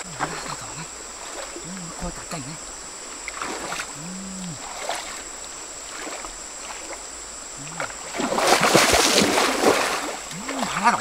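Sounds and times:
person wading in river water: 0.0 - 11.0
loud water splashing: 3.2 - 4.0, 4.6 - 7.0, 7.6 - 11.0.

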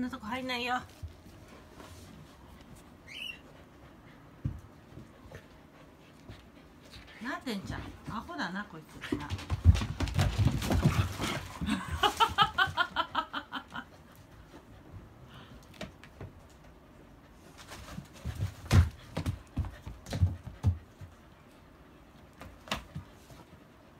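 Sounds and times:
dog squeaking: 3.0 - 3.5
paws thumping on floor mat: 3.8 - 12.9, 17.4 - 21.4, 22.2 - 23.7.

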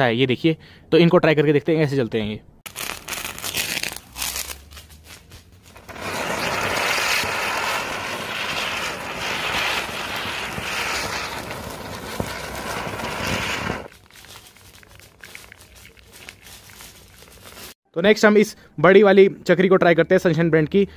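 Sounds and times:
spinning firecracker hissing: 2.7 - 4.6, 5.7 - 14.0.

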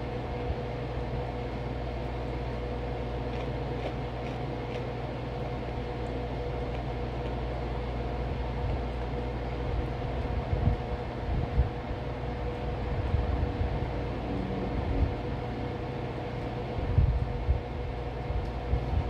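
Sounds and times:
low mechanical hum: 0.0 - 19.0
chewing crunchy chunks: 1.5 - 9.1.

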